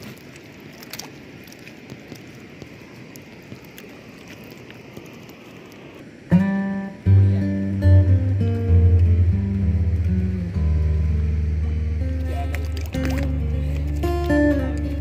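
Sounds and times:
rippling water: 0:00.0 - 0:15.0
background music with guitar: 0:06.3 - 0:15.0.

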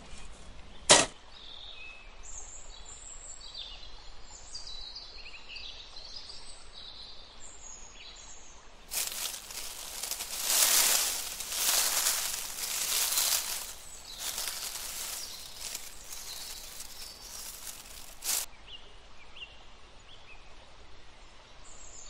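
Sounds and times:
brush sweeping dry sand: 0:08.9 - 0:18.5.

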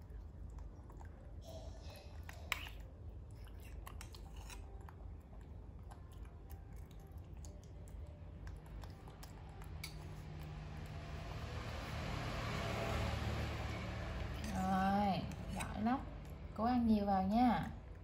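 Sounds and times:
small mouth clicks and smacks: 0:02.2 - 0:10.6.

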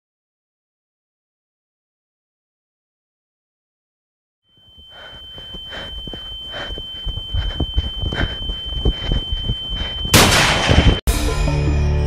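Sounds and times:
high-pitched electronic tone: 0:04.6 - 0:12.0.

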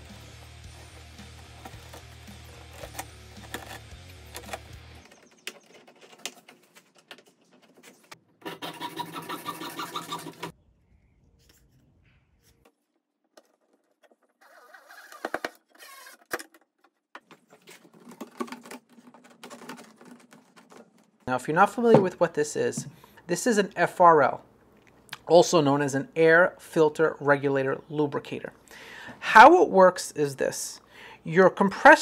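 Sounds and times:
plastic hose crinkling and scraping: 0:00.7 - 0:08.6, 0:12.4 - 0:23.2.

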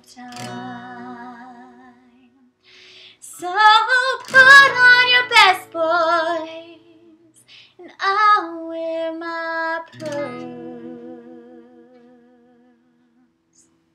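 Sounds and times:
acoustic guitar strumming: 0:00.0 - 0:02.2, 0:03.3 - 0:06.8, 0:09.8 - 0:11.7
woman singing: 0:00.0 - 0:02.5, 0:03.1 - 0:13.3.

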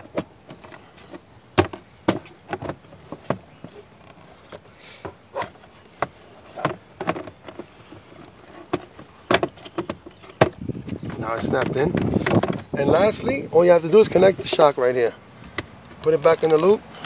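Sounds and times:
plastic glove box knocking: 0:08.7 - 0:13.0.

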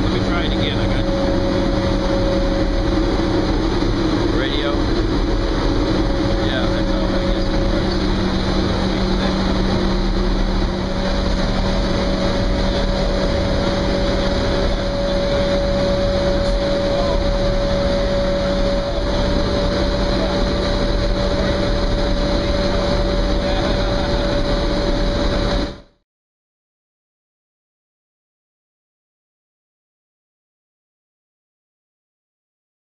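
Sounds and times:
steady higher tone: 0:00.0 - 0:25.8
boiler plant machinery running: 0:00.0 - 0:26.0.

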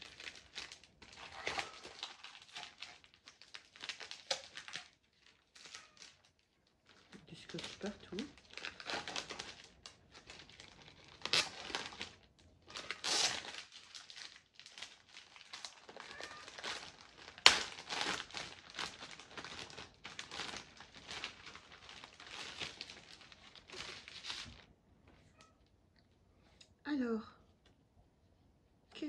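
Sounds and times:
plastic wrapping crinkling: 0:00.0 - 0:24.7
sticky tape pulling free: 0:13.0 - 0:13.5.

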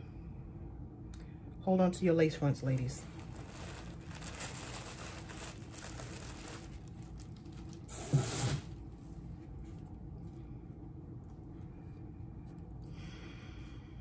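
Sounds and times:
packaging crinkling and rustling: 0:02.6 - 0:10.0.

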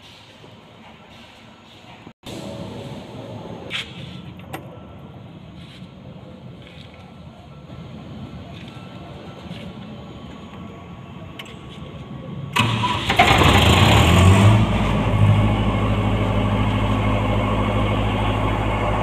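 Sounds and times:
diesel generator engine running: 0:12.0 - 0:19.0
electric starter cranking: 0:12.6 - 0:14.6.

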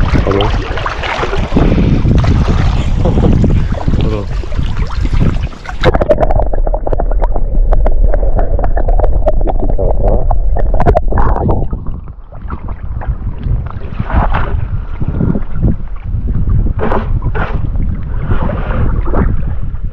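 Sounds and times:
muffled underwater sloshing: 0:00.0 - 0:19.9
water splashing and gurgling: 0:00.0 - 0:19.9.

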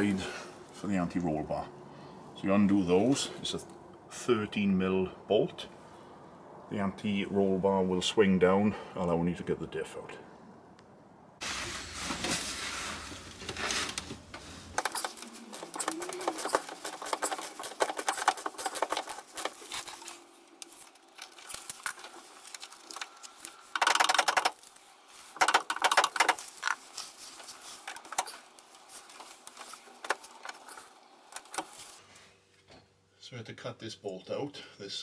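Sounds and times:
hand ratchet clicking: 0:23.7 - 0:24.6.

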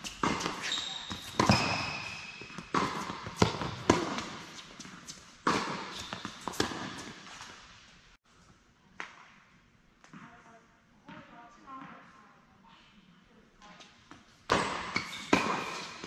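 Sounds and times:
tennis ball bouncing on hard court: 0:00.0 - 0:07.6, 0:14.1 - 0:16.0
tennis ball hit by rackets: 0:00.1 - 0:04.6, 0:05.4 - 0:07.6, 0:14.5 - 0:16.0.

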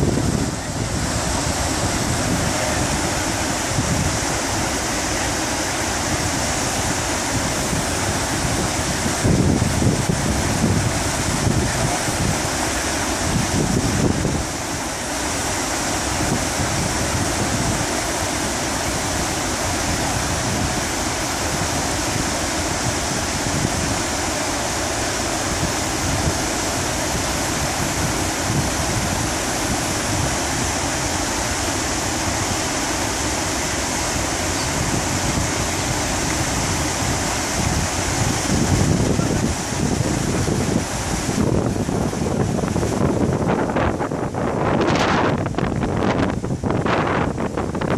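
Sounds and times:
river water rushing over rapids: 0:00.0 - 0:47.9.

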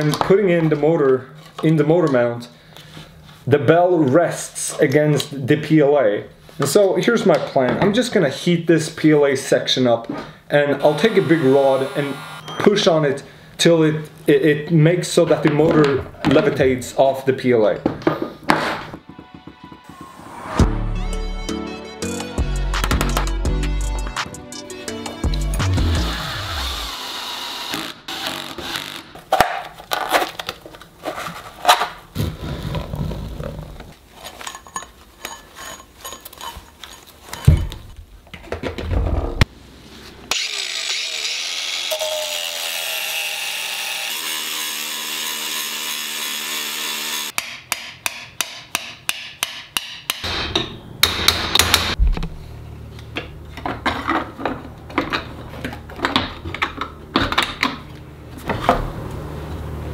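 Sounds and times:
angle grinder cutting steel: 0:10.8 - 0:12.5, 0:25.8 - 0:29.1, 0:40.3 - 0:47.4
drill driving screws: 0:10.8 - 0:12.5, 0:25.9 - 0:29.2, 0:40.3 - 0:47.3.

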